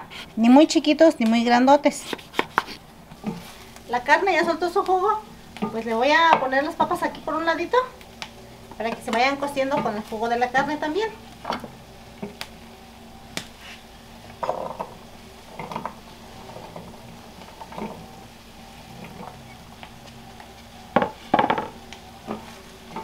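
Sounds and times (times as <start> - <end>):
potatoes sliding into a pot: 1.9 - 23.0
wooden spoon knocking in a pot: 20.9 - 23.0.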